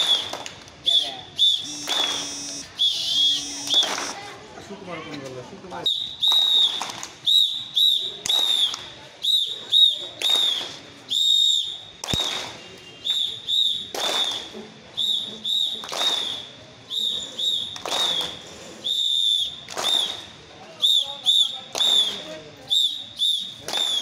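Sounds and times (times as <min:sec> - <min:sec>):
whistle blasts: 0:00.0 - 0:04.2, 0:05.8 - 0:24.0.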